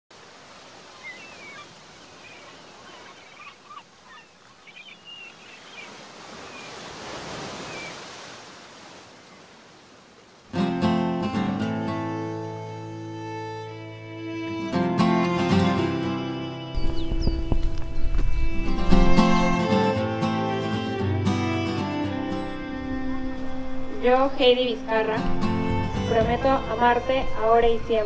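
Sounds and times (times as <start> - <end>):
sea surf washing on beach: 0.1 - 3.3, 5.1 - 11.5
string chords with plucked guitar: 10.6 - 28.0.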